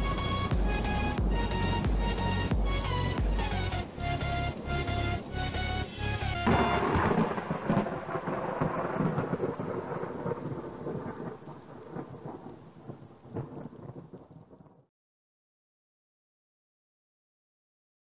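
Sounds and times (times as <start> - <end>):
music: 0.0 - 7.0
rain hissing: 0.0 - 14.6
thunder crack and rumble: 6.4 - 14.9.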